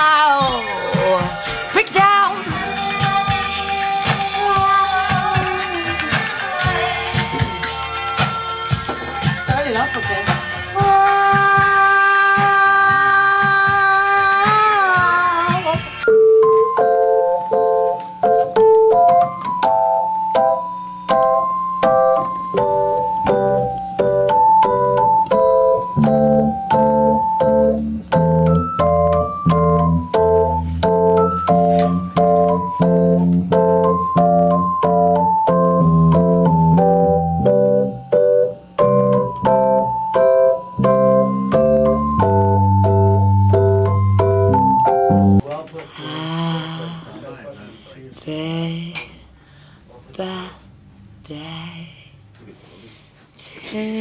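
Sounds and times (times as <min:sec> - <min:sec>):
keyboard chords and melody: 0:00.0 - 0:45.4
deep bass line: 0:22.6 - 0:40.1, 0:40.8 - 0:45.4.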